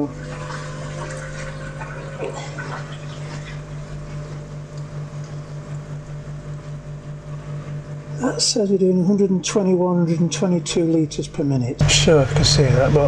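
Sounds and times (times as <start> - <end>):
water rushing through pipes: 0.0 - 3.9
pond pump humming: 0.0 - 13.0.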